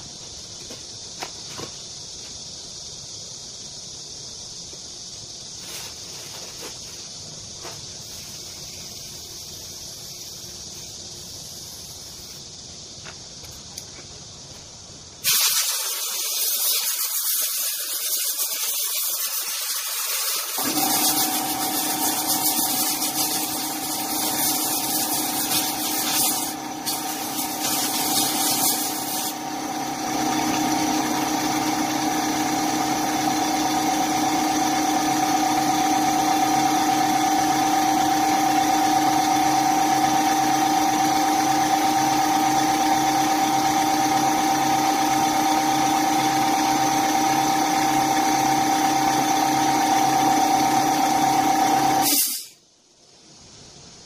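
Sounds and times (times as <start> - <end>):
loud even hiss: 0.0 - 29.4, 52.0 - 54.0
steady machine hum: 19.8 - 52.0.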